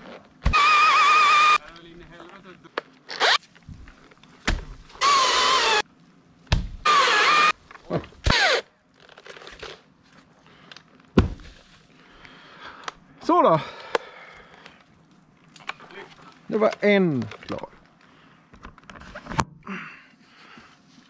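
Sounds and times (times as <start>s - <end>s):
power saw cutting wood: 5.0s - 5.8s.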